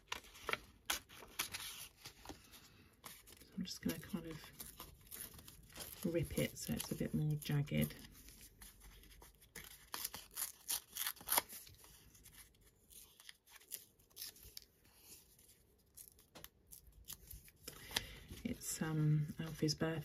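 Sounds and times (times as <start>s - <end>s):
paper rustling: 0.0s - 18.6s
paper tearing: 8.6s - 12.2s.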